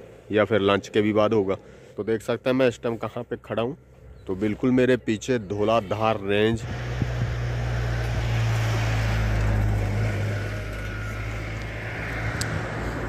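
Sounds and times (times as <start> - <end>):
outdoor noise: 0.0 - 13.0
vehicle engine humming: 3.8 - 13.0.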